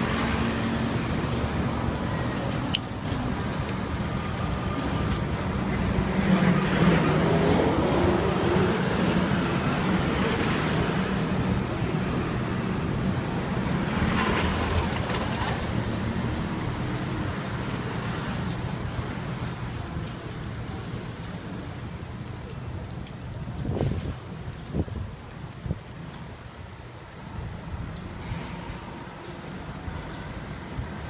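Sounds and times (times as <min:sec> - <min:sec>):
street traffic passing: 0:00.0 - 0:31.0.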